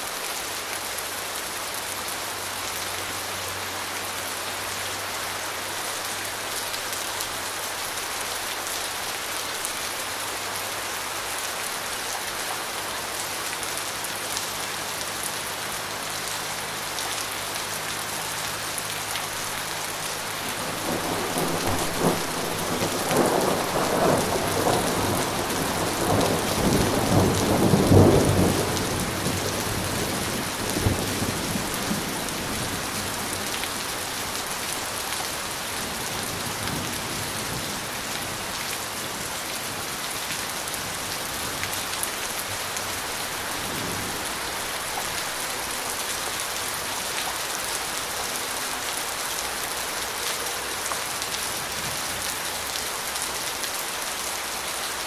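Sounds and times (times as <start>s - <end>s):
steady rain falling: 0.0s - 55.0s
thunder rolling: 20.6s - 29.4s.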